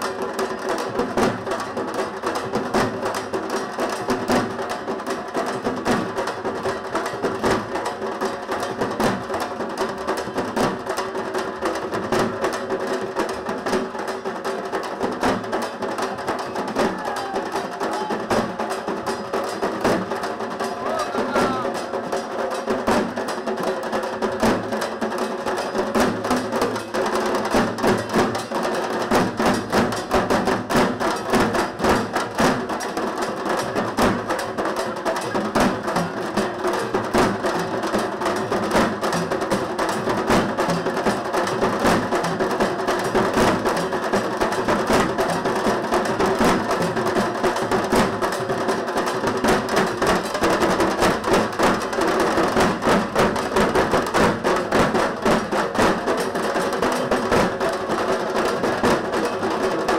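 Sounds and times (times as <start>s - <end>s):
barrel drums beaten fast: 0.0s - 59.9s.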